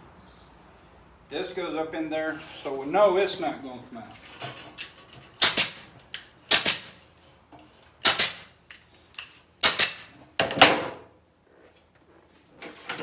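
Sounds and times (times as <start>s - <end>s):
pneumatic ring gun snapping: 4.8s - 7.0s, 8.0s - 8.6s, 9.2s - 10.1s.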